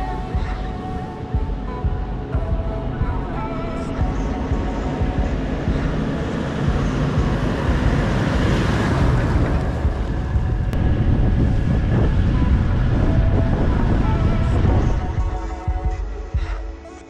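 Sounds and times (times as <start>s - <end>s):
wind rumbling on microphone: 0.0s - 16.5s
vehicle driving past: 4.8s - 15.0s.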